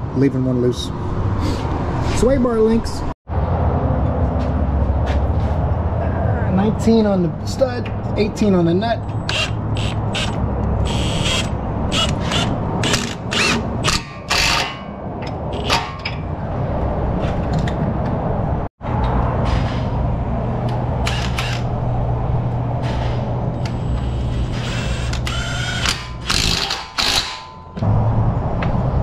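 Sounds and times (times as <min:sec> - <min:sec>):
impact wrench hammering: 0:25.1 - 0:27.8.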